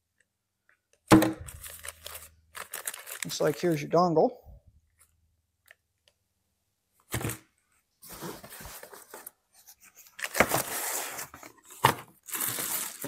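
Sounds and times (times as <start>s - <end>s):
plastic bags crinkling: 1.4s - 4.0s, 12.2s - 13.0s.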